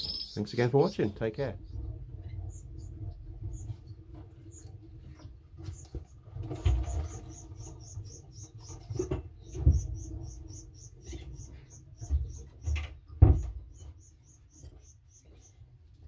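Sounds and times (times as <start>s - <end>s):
canary cheeping: 0.0s - 0.4s
dull low knocks: 8.9s - 14.0s.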